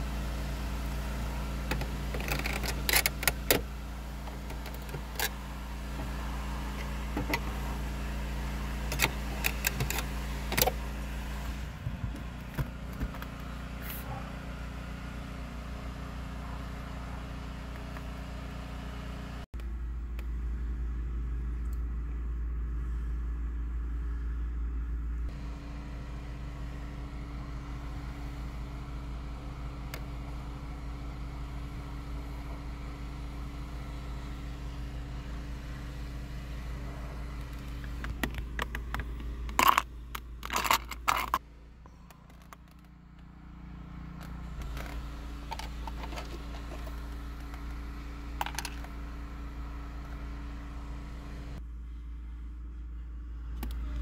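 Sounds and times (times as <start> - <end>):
car engine hum inside cabin: 0.0 - 54.0
plastic clicks and scrapes: 1.7 - 3.6, 37.4 - 41.4.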